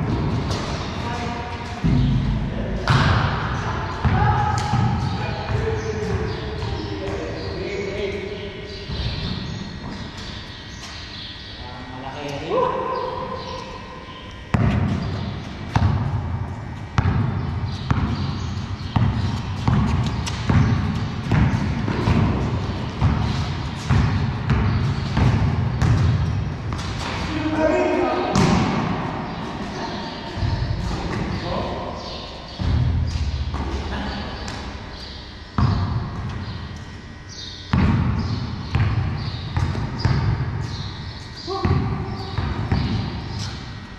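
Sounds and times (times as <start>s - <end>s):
basketball bouncing on concrete: 1.8s - 7.3s, 14.5s - 27.3s, 28.3s - 29.0s, 32.5s - 36.9s, 37.6s - 43.6s.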